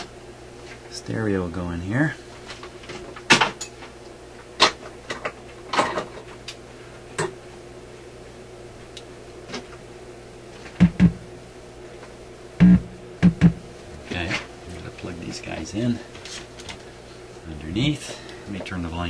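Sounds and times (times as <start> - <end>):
steady low hum: 0.0 - 19.0
loud thumps: 10.8 - 11.2, 12.6 - 13.6.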